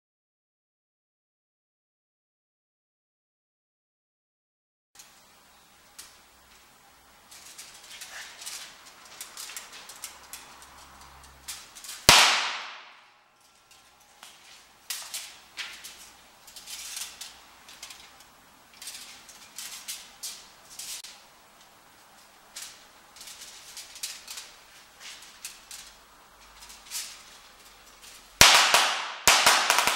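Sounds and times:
capacitor crackling and hissing: 5.0s - 29.9s
crackles and ticks: 7.3s - 12.0s, 13.4s - 28.2s
capacitor bursting with loud bang: 12.0s - 13.1s, 28.4s - 29.9s.

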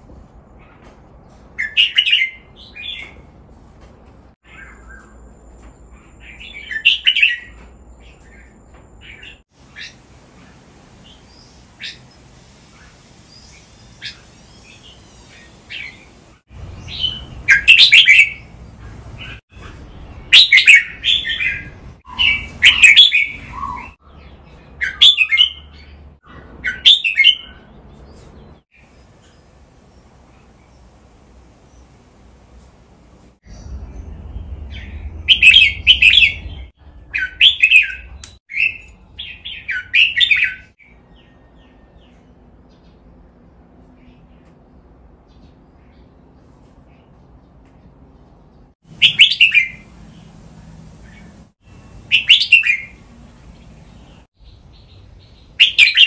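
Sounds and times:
soft bird chirps: 4.4s - 32.6s
bulbuls whistling song phrases: 20.2s - 24.1s, 49.0s - 50.4s, 51.0s - 54.2s.

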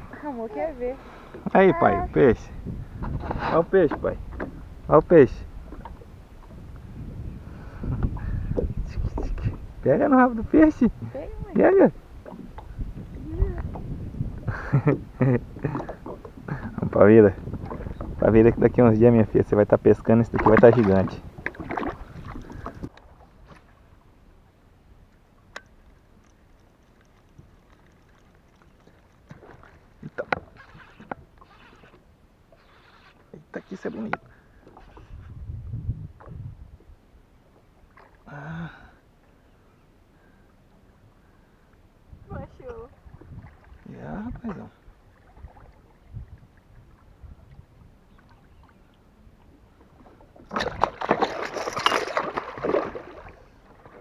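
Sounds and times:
fish splashing in water: 50.4s - 53.6s.

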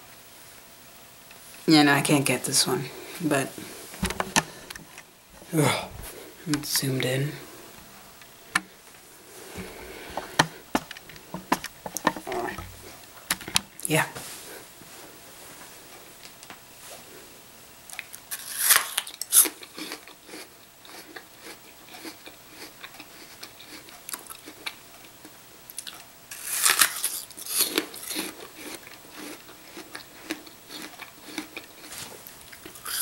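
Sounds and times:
soft chewing crunches: 7.4s - 13.2s, 17.9s - 33.0s
crunching apple bites: 17.9s - 33.0s.

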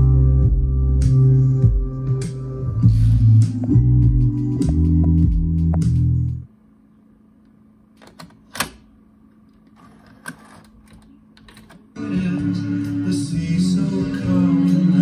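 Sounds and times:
music: 0.0s - 6.5s, 12.0s - 15.0s
music playing from tape: 0.0s - 6.5s, 12.0s - 15.0s
faint steady hum: 0.0s - 15.0s.

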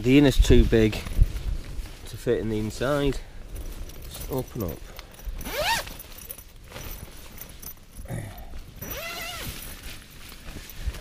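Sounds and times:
wind noise on microphone: 0.0s - 4.2s, 8.6s - 11.0s
tent zip being pulled: 5.3s - 7.6s, 8.8s - 11.0s.

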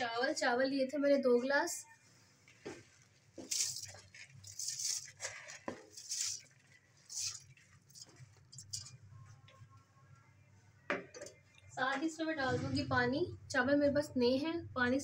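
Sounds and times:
rice grains pattering into pot: 3.4s - 9.0s.

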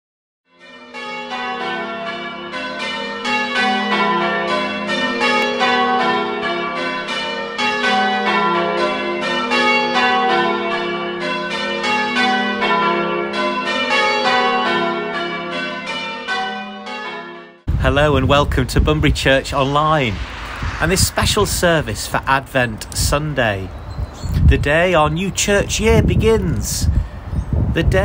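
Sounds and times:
church bells ringing: 0.5s - 17.7s.

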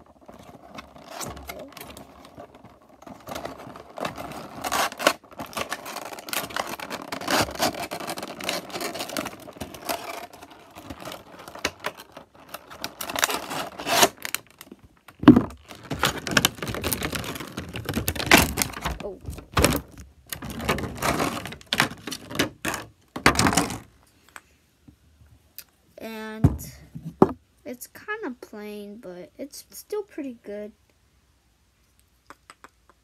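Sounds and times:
plastic bag crinkling: 0.0s - 23.9s.

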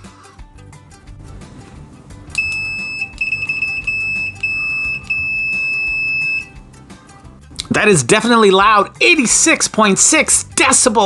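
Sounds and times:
multimeter continuity beep: 2.4s - 6.6s.

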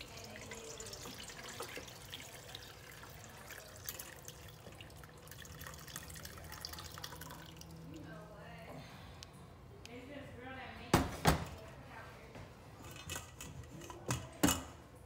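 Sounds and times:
liquid trickling into metal bowl: 0.0s - 8.1s
small splashes and drips: 0.0s - 8.1s.

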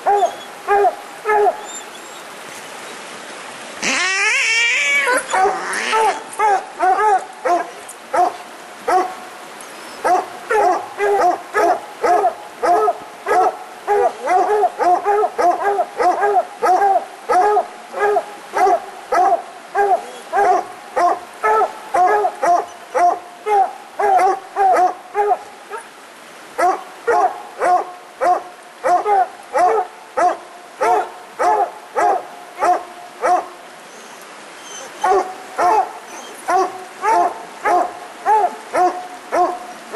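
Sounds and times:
hounds barking short chop barks: 10.1s - 25.4s, 26.6s - 33.5s, 35.0s - 35.9s.

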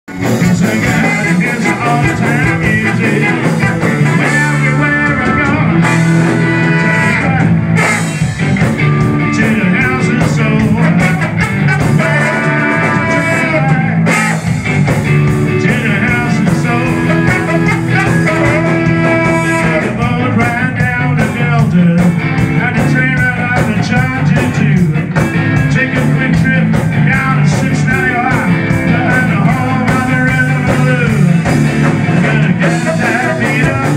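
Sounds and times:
trombone and saxophone horn section: 0.1s - 14.8s, 15.6s - 20.0s
ska band playing: 0.1s - 33.9s.

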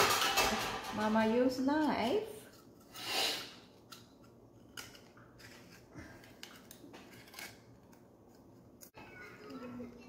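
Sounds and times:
knife scraping a shell: 2.5s - 9.0s.

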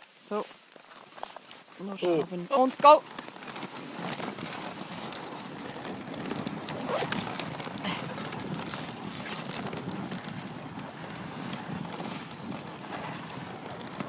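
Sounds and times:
sled runners scraping on snow: 0.0s - 14.0s.

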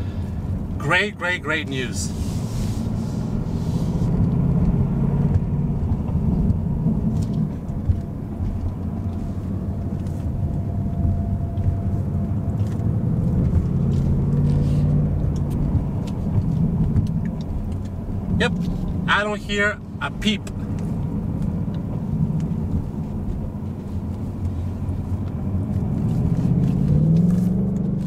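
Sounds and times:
car engine at low revs: 0.0s - 28.0s.

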